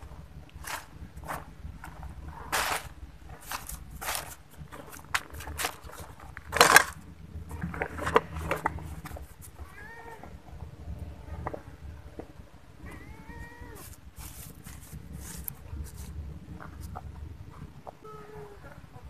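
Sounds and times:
rustling scuffs on dry rubbish: 0.6 - 6.2, 13.7 - 16.2
cats meowing: 7.4 - 8.8, 9.4 - 11.8, 12.8 - 14.1, 18.0 - 19.0
cat passing microphone: 12.8 - 14.0.

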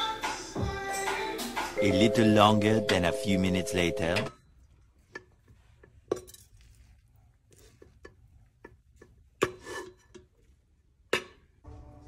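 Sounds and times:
spoon scraping rice: 5.0 - 10.7.

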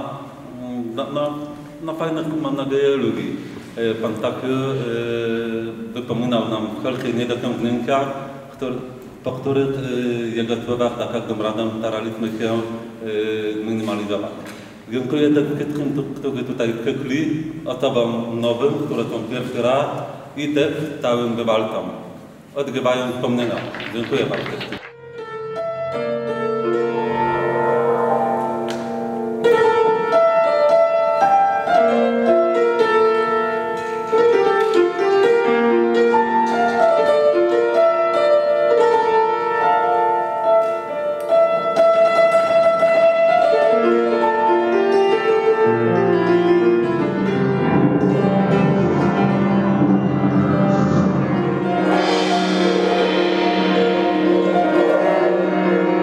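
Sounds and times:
slow piano melody: 24.8 - 56.0
low bass note: 46.9 - 55.0
high hissing swell: 47.0 - 56.0.

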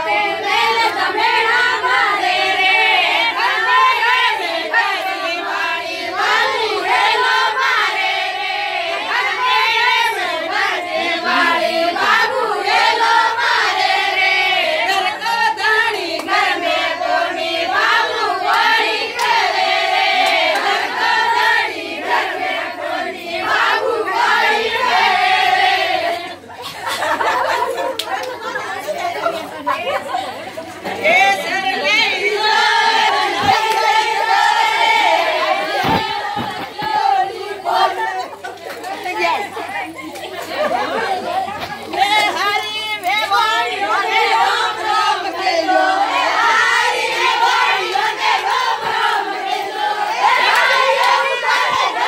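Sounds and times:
women singing folk song: 0.0 - 26.6, 29.6 - 52.0.

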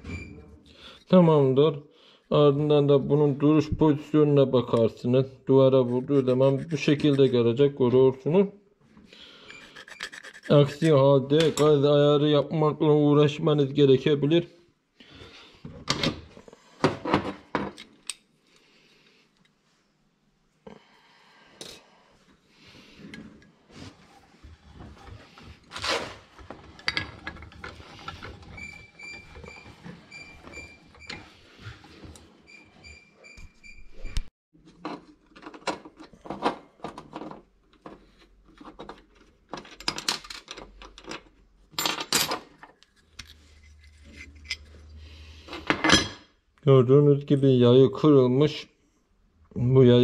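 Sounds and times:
metal parts and wrench clinking: 9.5 - 10.9, 39.5 - 44.7.

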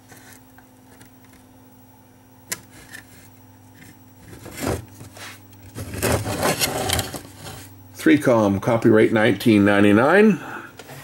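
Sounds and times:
low steady hum: 0.0 - 11.0
circuit board rubbing and knocking: 2.5 - 7.7.

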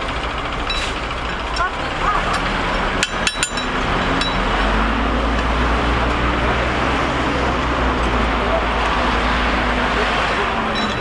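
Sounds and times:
street market background noise: 0.0 - 11.0
sharp metallic clinks: 2.3 - 4.5, 10.7 - 11.0.

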